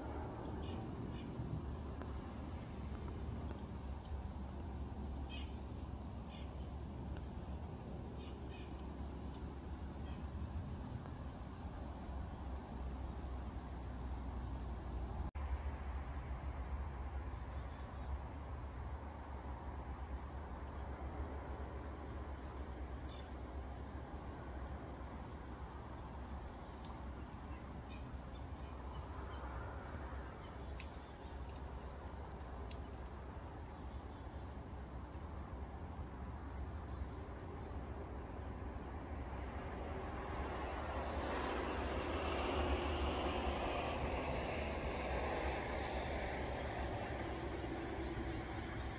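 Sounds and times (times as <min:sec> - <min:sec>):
low steady rumble: 0:00.0 - 0:48.9
small bird chirping: 0:16.2 - 0:19.4, 0:20.0 - 0:29.5, 0:30.1 - 0:34.4, 0:35.0 - 0:39.3, 0:47.5 - 0:48.9.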